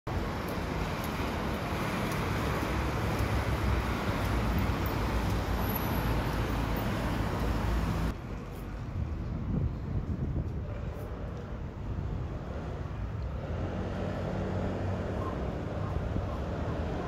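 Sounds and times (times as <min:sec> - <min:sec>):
tyres hissing on wet road: 0:00.1 - 0:08.1.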